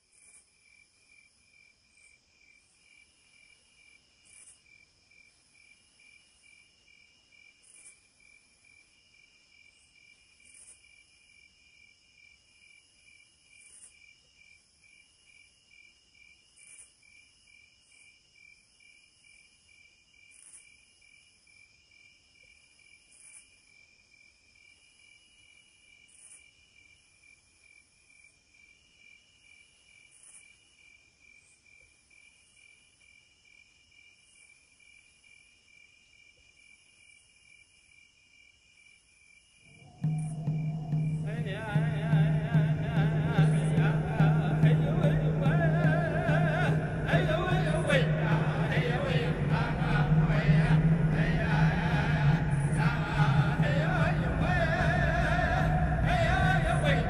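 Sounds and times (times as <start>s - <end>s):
crickets chirping: 0.0s - 57.0s
insects trilling: 0.1s - 57.0s
sharper insect chirp: 0.2s - 41.4s.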